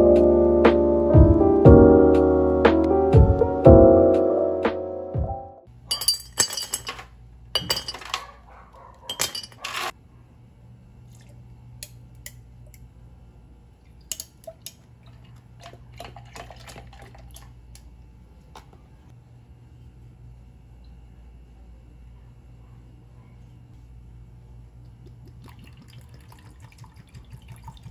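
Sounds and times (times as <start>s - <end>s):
tableware and glass clinking: 5.9s - 8.3s, 9.0s - 9.9s
milk pouring into a glass: 13.9s - 17.6s, 24.9s - 27.9s.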